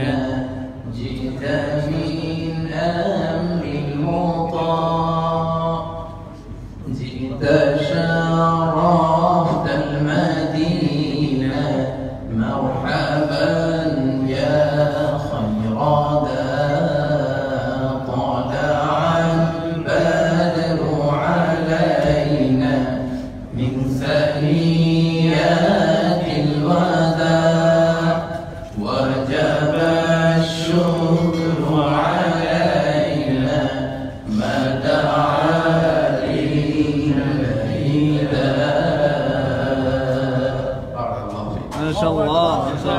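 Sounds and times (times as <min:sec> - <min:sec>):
man singing unaccompanied: 0:06.9 - 0:23.0, 0:23.6 - 0:40.9.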